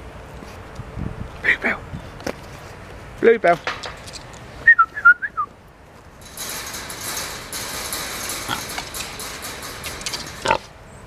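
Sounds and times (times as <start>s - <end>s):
pig rooting in soil and straw: 9.8s - 11.0s.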